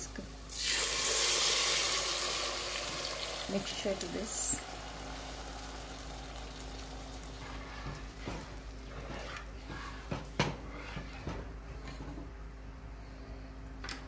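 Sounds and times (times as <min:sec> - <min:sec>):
sauce sizzling in a pot: 0:00.5 - 0:08.9
ladle scraping and knocking pot: 0:07.4 - 0:12.2.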